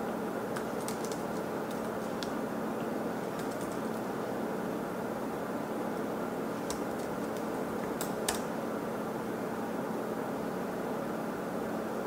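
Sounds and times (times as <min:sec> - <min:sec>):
steady white noise hiss: 0:00.0 - 0:12.0
laptop keyboard keystrokes: 0:00.5 - 0:02.4, 0:03.2 - 0:04.0, 0:06.6 - 0:08.5.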